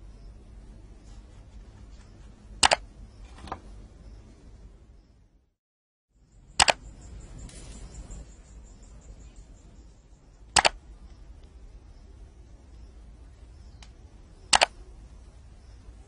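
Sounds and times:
sharp double clicks: 0:02.6 - 0:02.8, 0:06.5 - 0:07.6, 0:10.5 - 0:10.8, 0:13.8 - 0:14.8.

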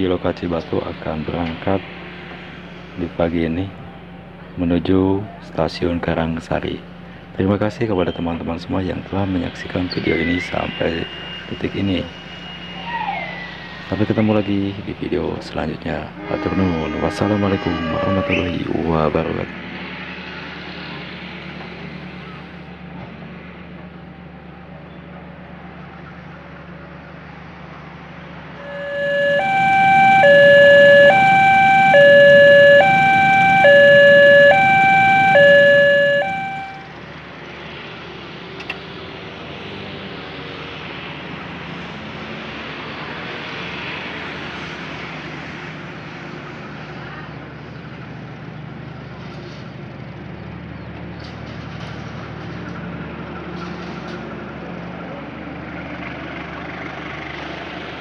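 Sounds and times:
train coaches rumbling on rails: 0:00.0 - 0:28.8
two-tone siren: 0:10.0 - 0:14.8, 0:16.2 - 0:18.9, 0:28.6 - 0:37.0.

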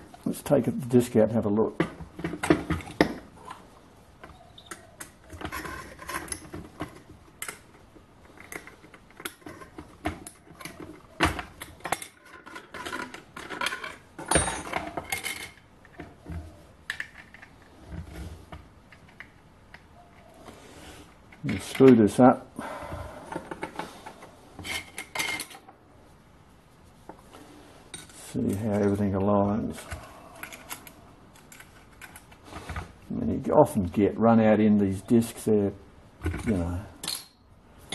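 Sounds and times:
small metal parts clinking: 0:11.6 - 0:16.0, 0:24.6 - 0:25.7, 0:29.8 - 0:32.4, 0:36.3 - 0:37.4.

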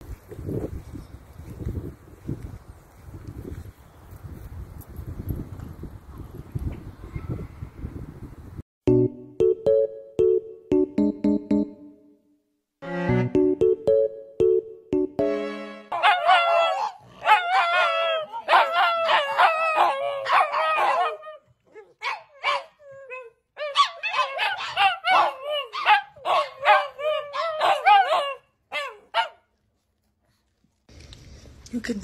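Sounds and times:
dogs howling and yipping: 0:16.0 - 0:29.2.

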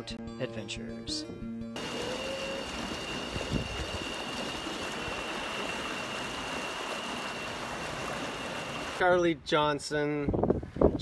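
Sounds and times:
high-pitched motor whine: 0:01.8 - 0:09.0
water and wind rushing: 0:01.8 - 0:09.4.

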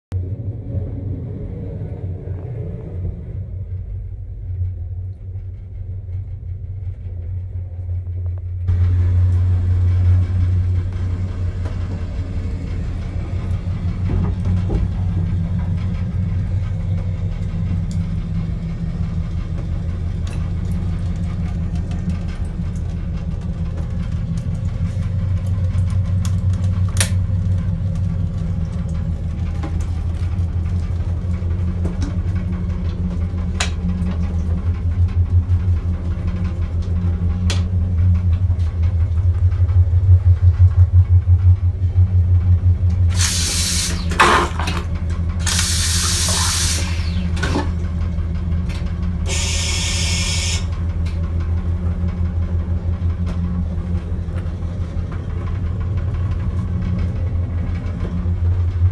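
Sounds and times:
train rumble and hum: 0:00.1 - 0:58.9
tap water hissing: 0:43.1 - 0:44.7, 0:45.4 - 0:47.7, 0:49.2 - 0:50.7.

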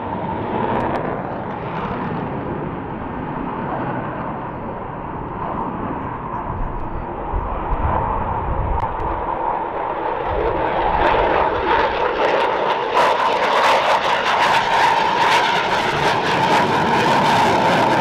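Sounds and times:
jet engine whine and rush: 0:00.0 - 0:18.0.

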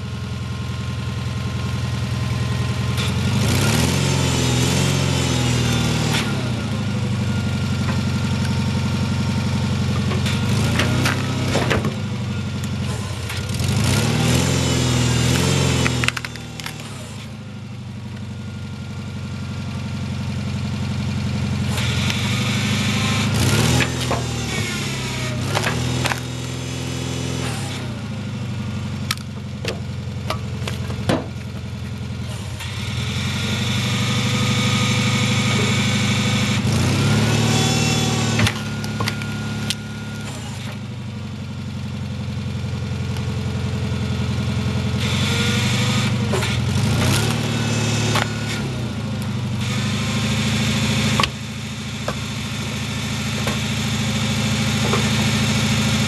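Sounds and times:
engine running a log splitter: 0:00.0 - 0:56.0.

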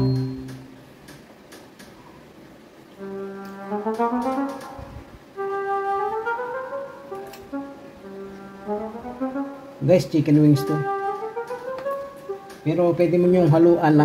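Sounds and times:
instrumental music with sliding notes: 0:02.9 - 0:13.8.

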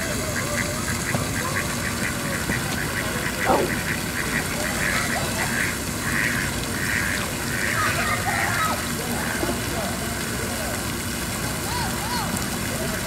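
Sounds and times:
duck quacking: 0:00.2 - 0:08.6.

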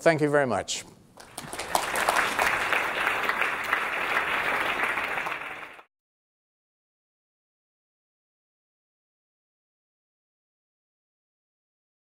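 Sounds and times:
audience applauding: 0:01.2 - 0:05.9.

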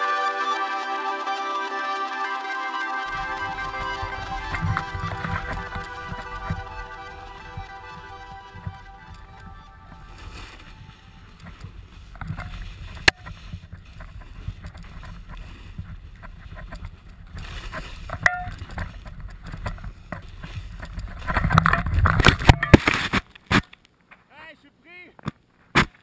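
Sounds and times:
rush of snow and air: 0:03.1 - 0:22.1
camera tumbling into snow: 0:03.1 - 0:23.3.

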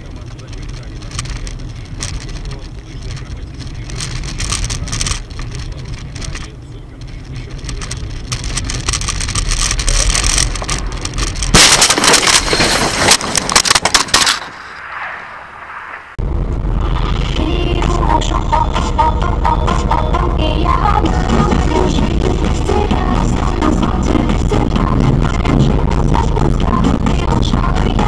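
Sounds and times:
car road and tyre noise: 0:00.0 - 0:28.0
car crash crunching impacts: 0:08.0 - 0:16.0.

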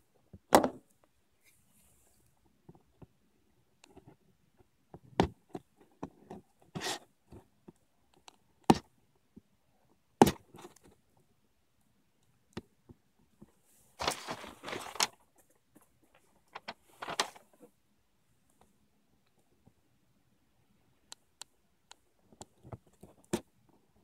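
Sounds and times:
scraping rustle on box: 0:13.9 - 0:15.1.

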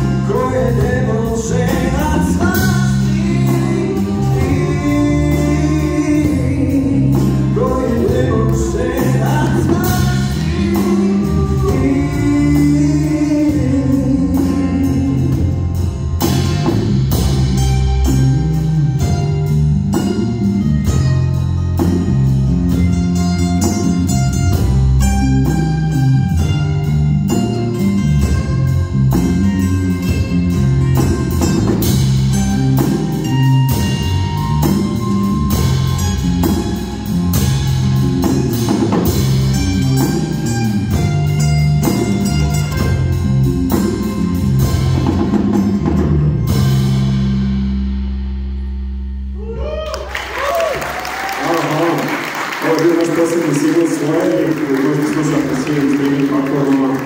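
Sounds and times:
man singing: 0:00.0 - 0:15.8
acoustic guitars: 0:00.0 - 0:47.4
electric guitar: 0:00.0 - 0:47.8.

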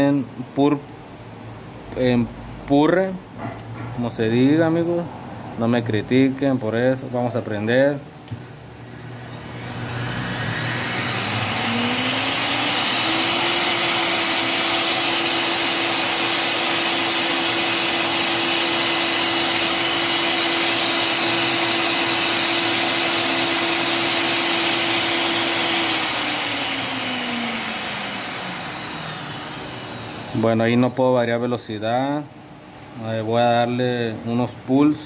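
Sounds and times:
blender motor whining: 0:09.0 - 0:30.6.

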